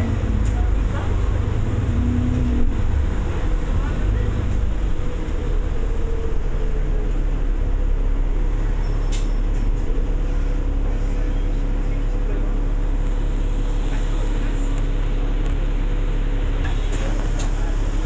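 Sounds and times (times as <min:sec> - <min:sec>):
bus engine rumble: 0:00.0 - 0:18.0.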